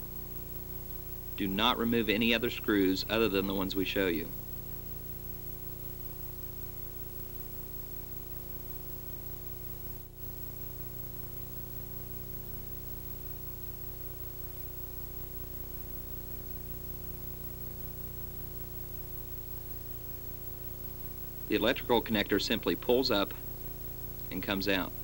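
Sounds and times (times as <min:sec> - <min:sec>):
low electrical hum: 0:00.0 - 0:25.0
tape hiss: 0:00.0 - 0:25.0.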